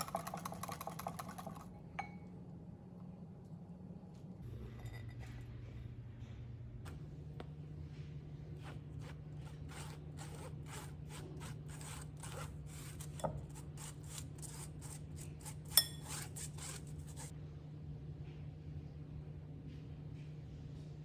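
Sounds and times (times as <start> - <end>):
spatula scraping flour through sieve: 8.4 - 17.3.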